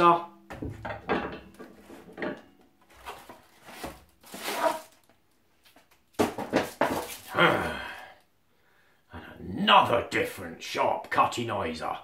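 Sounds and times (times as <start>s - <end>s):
cardboard rustles and scrapes: 2.9s - 5.1s.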